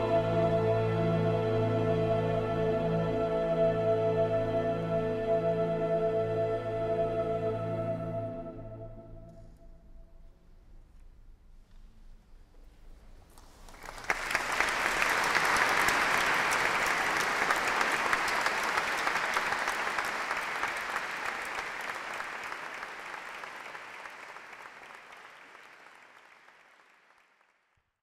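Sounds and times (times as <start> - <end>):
audience applause: 13.4 - 27.7.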